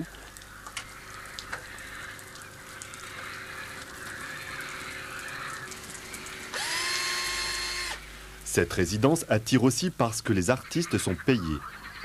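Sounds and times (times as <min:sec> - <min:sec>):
small electric motor whining: 0:06.5 - 0:08.0.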